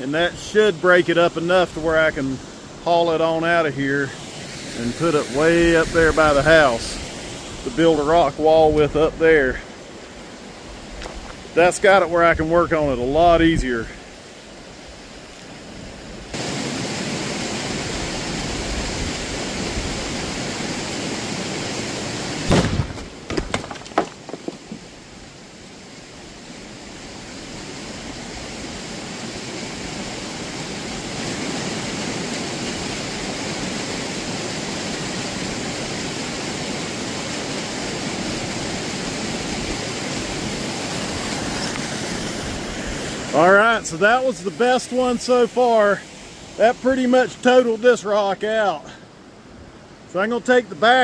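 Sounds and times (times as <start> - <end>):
steady rushing noise: 0.0 - 22.5, 26.0 - 49.0
explosive bang: 22.5 - 23.1
rock cracking: 22.5 - 24.9.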